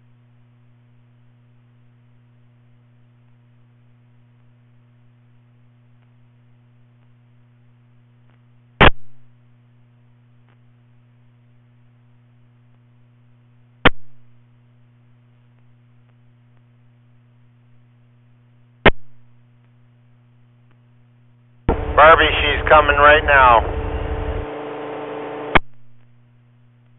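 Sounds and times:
electrical hum from speaker: 0.0 - 26.9.

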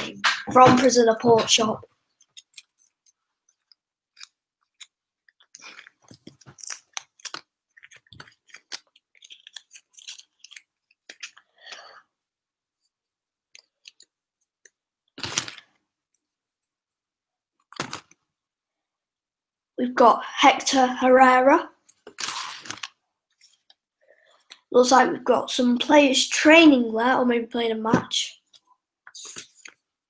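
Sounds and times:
wrapper tearing and crinkling: 5.5 - 11.4, 15.2 - 15.7, 22.0 - 23.0.

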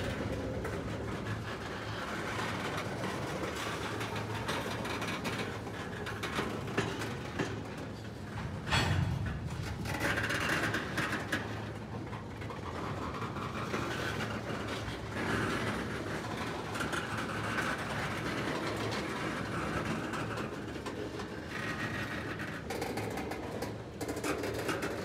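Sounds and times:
freight train rolling past: 8.1 - 12.0.

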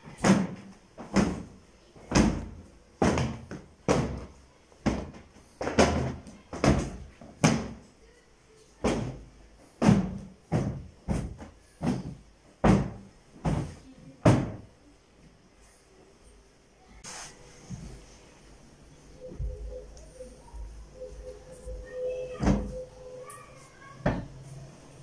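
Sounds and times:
cloth beating sofa cushions: 0.2 - 7.8, 8.8 - 14.7.

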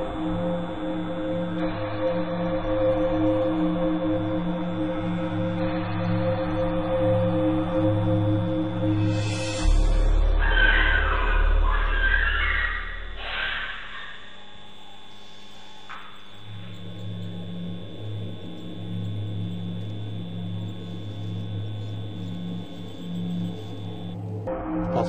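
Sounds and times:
faint high whine: 8.0 - 25.0
electrical mains hum: 10.5 - 24.4.

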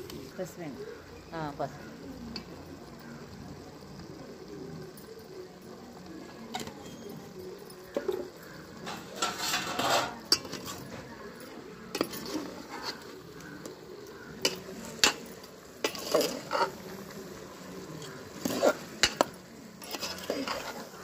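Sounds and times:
curry sizzling: 0.0 - 21.0
metal ladle scraping a pot: 8.0 - 21.0.

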